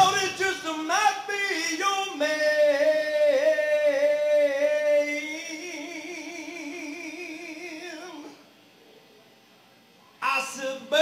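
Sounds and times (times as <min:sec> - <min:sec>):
man singing long note with vibrato: 0:00.0 - 0:08.4.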